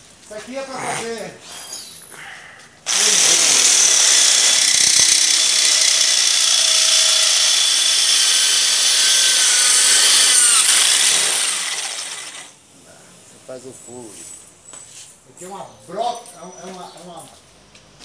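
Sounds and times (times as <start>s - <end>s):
electric drill whining: 2.9s - 12.6s.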